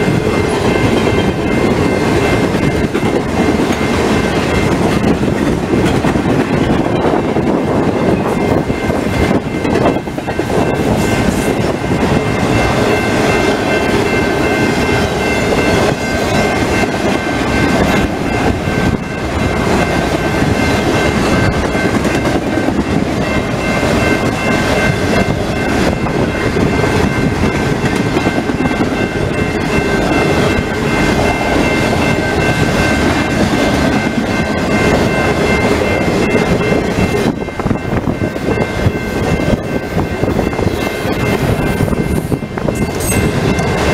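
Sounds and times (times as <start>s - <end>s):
freight train wheels rumbling: 0.0s - 43.9s
high-pitched tones: 5.8s - 43.9s.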